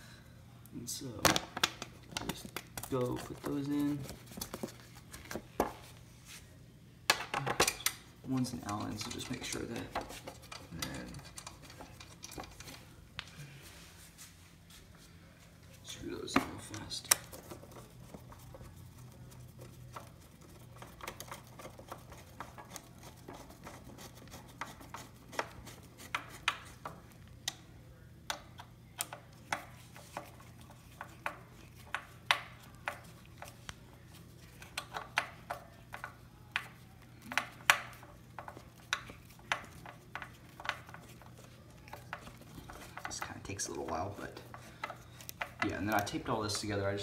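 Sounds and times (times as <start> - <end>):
sharp clicks and light scraping: 7.5 - 13.3.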